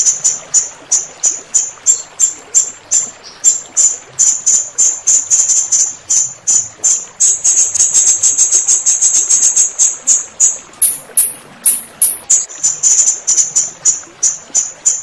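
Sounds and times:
running water: 0:00.0 - 0:15.0
parrot high-pitched calls: 0:10.2 - 0:12.5.

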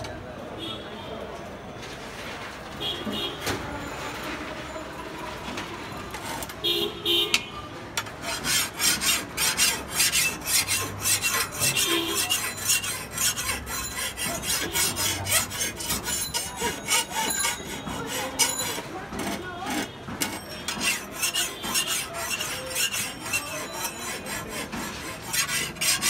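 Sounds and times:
hand file rasping on steel blade: 0:08.0 - 0:26.0.

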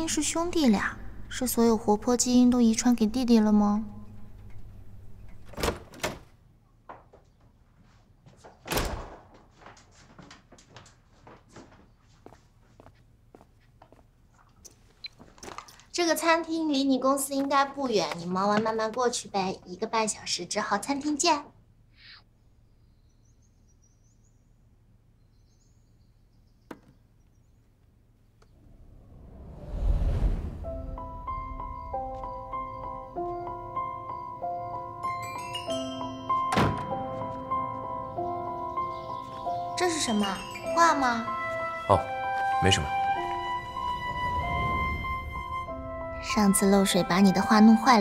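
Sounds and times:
door opening and closing: 0:04.2 - 0:06.4, 0:08.6 - 0:09.4, 0:36.4 - 0:37.1
light footsteps: 0:06.9 - 0:15.6.

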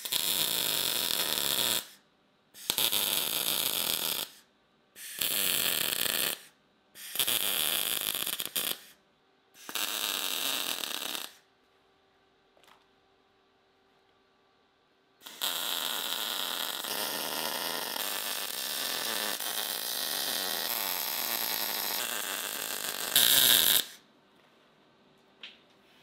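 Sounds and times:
welding arc: 0:00.0 - 0:02.0, 0:02.6 - 0:04.4, 0:05.0 - 0:09.0, 0:09.6 - 0:11.4, 0:15.2 - 0:24.0.

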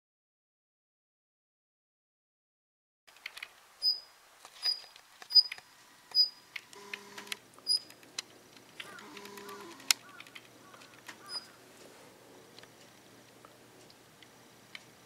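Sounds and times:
bird dry clicking notes: 0:06.7 - 0:11.6
bird high thin calls: 0:08.8 - 0:11.6.

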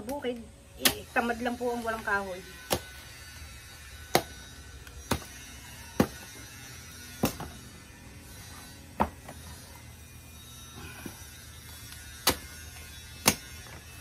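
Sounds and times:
machete chopping stalks: 0:00.8 - 0:01.3, 0:02.6 - 0:03.0, 0:04.0 - 0:06.4, 0:07.2 - 0:07.6, 0:11.9 - 0:14.0.

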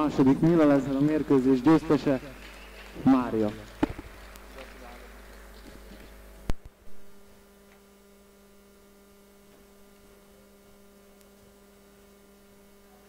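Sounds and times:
electrical mains hum: 0:00.0 - 0:13.0
sharp electrical pops: 0:01.6 - 0:07.9.

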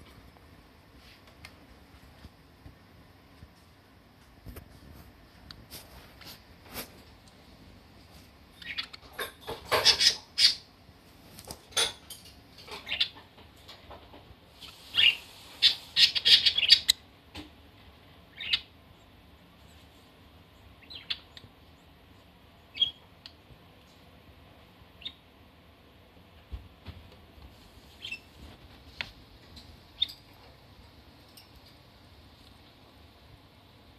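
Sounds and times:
budgerigar squawking and chirping: 0:09.7 - 0:10.6, 0:12.8 - 0:13.2, 0:14.7 - 0:17.0, 0:18.3 - 0:18.7, 0:20.8 - 0:21.3.

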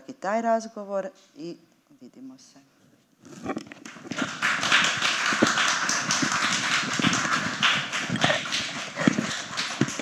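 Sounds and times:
audience applauding: 0:03.8 - 0:10.0.

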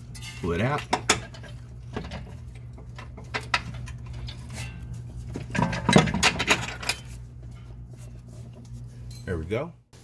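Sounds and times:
metal tools clinking and clanking: 0:00.0 - 0:07.2, 0:09.0 - 0:09.5
steady low hum: 0:00.0 - 0:10.0.

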